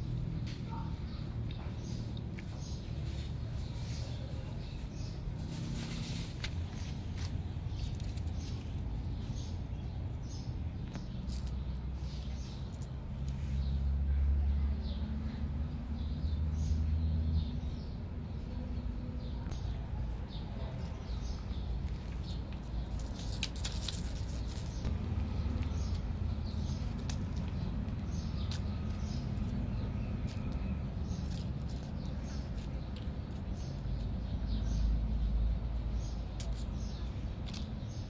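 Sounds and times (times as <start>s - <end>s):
steady low rumble: 17.5s - 38.0s.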